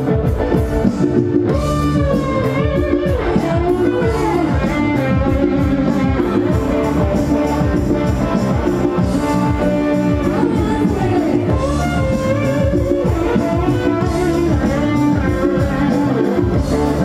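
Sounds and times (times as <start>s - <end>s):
live band with guitar: 0.0s - 17.0s
woman singing folk song: 10.2s - 12.1s.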